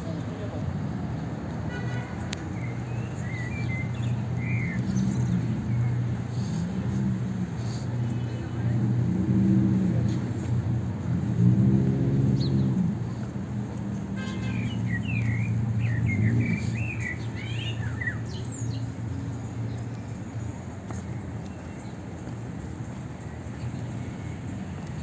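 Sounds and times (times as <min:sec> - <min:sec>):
street traffic hum: 0:00.0 - 0:25.0
vehicle engine: 0:02.3 - 0:25.0
small birds chirping: 0:02.4 - 0:08.8, 0:14.3 - 0:25.0.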